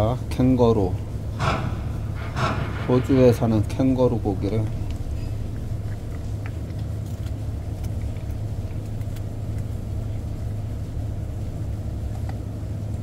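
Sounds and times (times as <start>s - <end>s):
ship engine drone: 0.0s - 12.1s
dog chewing and licking: 4.7s - 12.5s.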